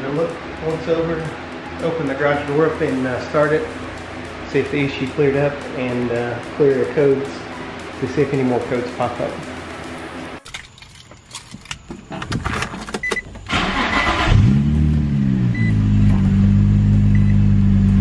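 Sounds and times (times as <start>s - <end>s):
engine cranking: 10.4s - 14.8s
car engine revving and idling: 13.8s - 18.0s.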